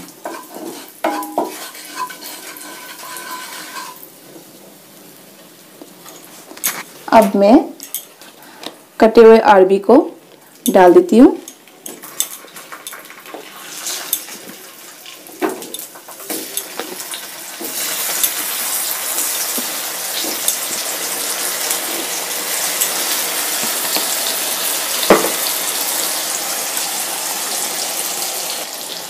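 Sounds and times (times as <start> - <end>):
oil sizzling: 0.0 - 9.0, 10.2 - 29.0
food knocking in pan: 21.6 - 24.3, 25.0 - 25.6.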